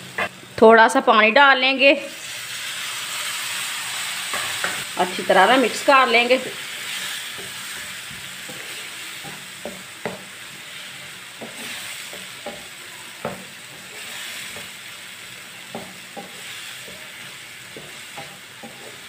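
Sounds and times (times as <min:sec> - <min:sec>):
vegetables sizzling in frying pan: 0:00.0 - 0:19.0
wooden spatula knocking pan: 0:09.6 - 0:10.3, 0:11.4 - 0:13.6, 0:15.7 - 0:17.1.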